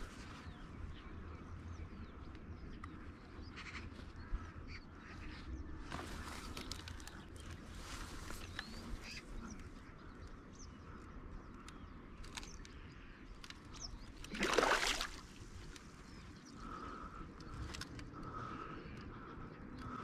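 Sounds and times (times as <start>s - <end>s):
faint bird calls: 0.0s - 20.0s
fish splashing at water surface: 14.2s - 15.4s.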